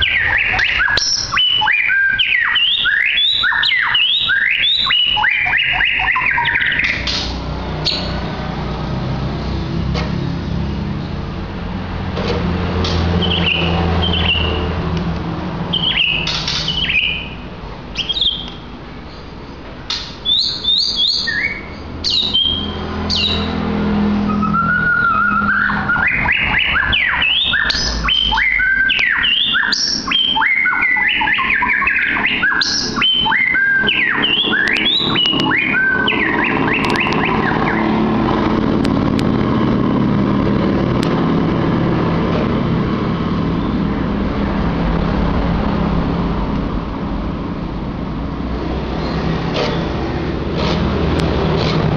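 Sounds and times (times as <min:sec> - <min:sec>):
songbird singing: 0:00.0 - 0:08.5, 0:12.8 - 0:40.4.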